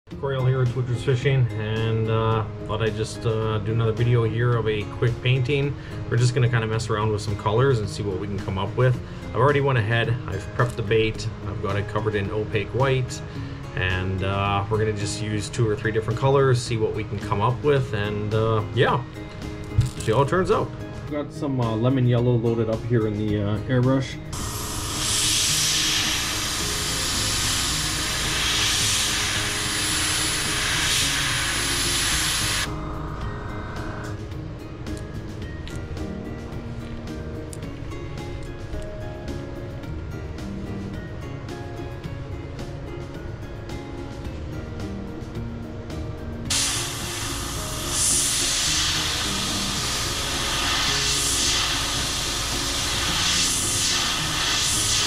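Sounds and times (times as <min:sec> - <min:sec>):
background music: 0:00.1 - 0:55.0
airbrush spraying hiss: 0:24.3 - 0:34.2, 0:46.5 - 0:55.0.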